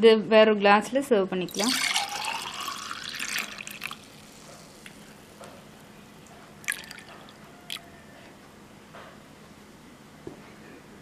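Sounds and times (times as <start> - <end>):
juice pouring into a glass: 1.5 - 5.2, 6.6 - 7.8.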